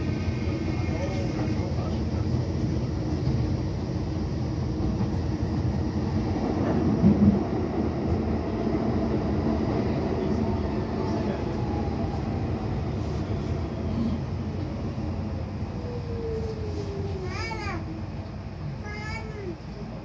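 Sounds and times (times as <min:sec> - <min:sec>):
train wheels on rail: 0:00.0 - 0:15.3.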